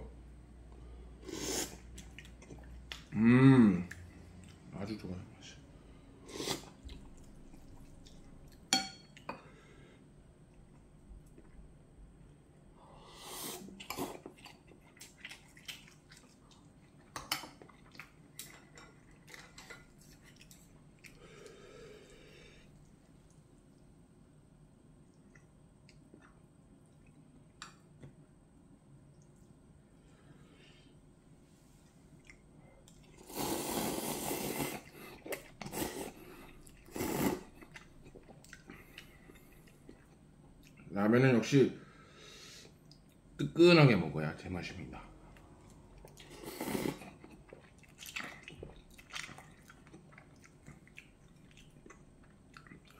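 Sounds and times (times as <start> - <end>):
quiet chewing: 1.3 - 3.2, 6.3 - 9.3, 13.6 - 23.9, 25.0 - 28.2, 31.7 - 33.4, 34.6 - 40.9, 45.2 - 52.9
noodles slurped: 33.1 - 40.0.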